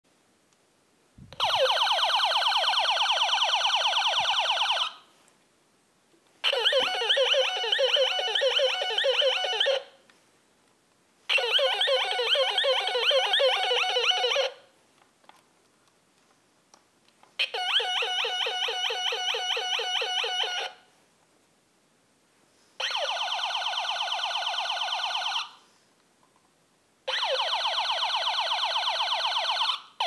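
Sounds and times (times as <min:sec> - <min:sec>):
toy pistol electronic sound effects: 0:01.4 - 0:04.5, 0:06.4 - 0:10.0, 0:11.3 - 0:14.6, 0:17.4 - 0:20.8, 0:22.8 - 0:25.5, 0:27.1 - 0:29.6.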